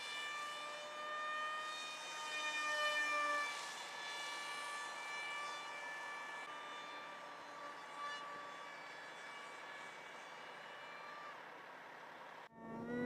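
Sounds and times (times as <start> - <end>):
model jet engine whine: 0.0 - 13.0.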